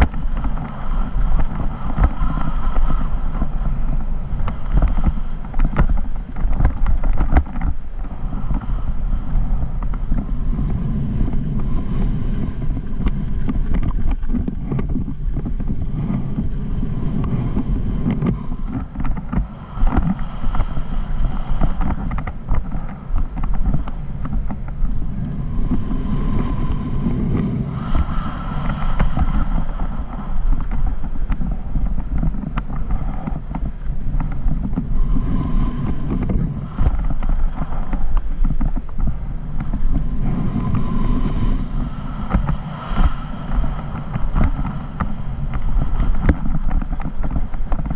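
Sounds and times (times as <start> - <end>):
wind on microphone: 0.0 - 47.9.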